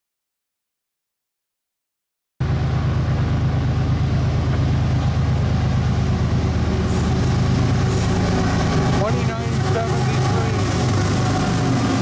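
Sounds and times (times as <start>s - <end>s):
diesel locomotive rumble: 2.4s - 12.0s.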